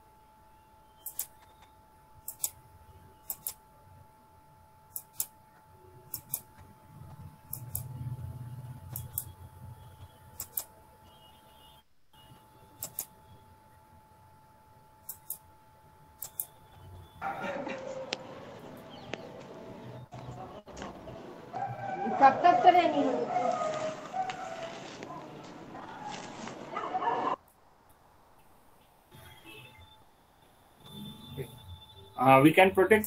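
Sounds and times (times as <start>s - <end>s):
faint electrical whine: 0.0s - 21.6s
computer mouse clicking: 1.0s - 1.7s, 2.3s - 2.6s, 3.2s - 3.6s, 4.9s - 5.3s, 6.1s - 6.6s, 7.5s - 8.0s, 10.4s - 10.7s, 12.8s - 13.1s, 15.0s - 15.4s, 16.2s - 16.6s.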